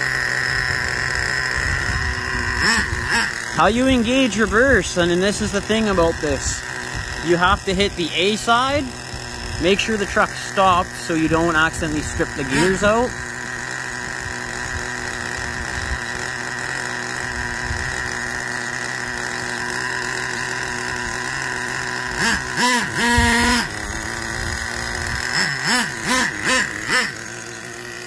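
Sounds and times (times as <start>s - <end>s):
engine throttle blips: 0.0s - 28.0s
small engine idling: 0.0s - 28.0s
person speaking: 3.1s - 9.0s, 9.6s - 13.3s.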